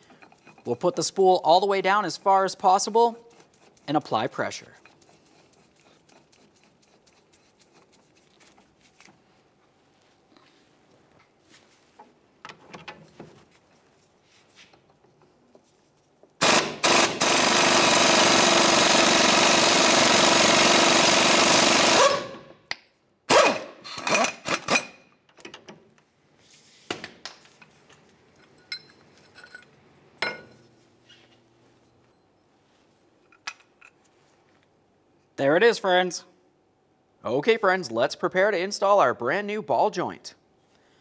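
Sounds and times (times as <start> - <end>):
impact wrench hammering: 16.4 - 22.4
light metal clinks: 28.3 - 30.6.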